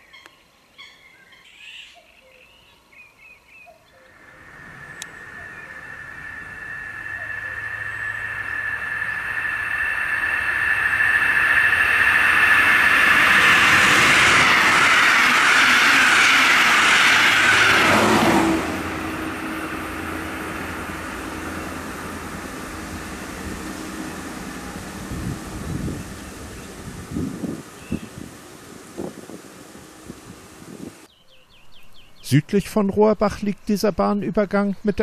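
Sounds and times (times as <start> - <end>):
train hum: 3.6 - 31.1
wheels rushing on rail: 3.9 - 31.1
high steady ringing: 4.1 - 31.1.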